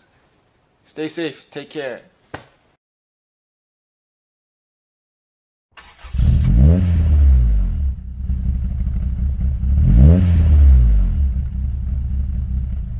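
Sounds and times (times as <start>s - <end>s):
car engine revving: 5.8s - 12.9s.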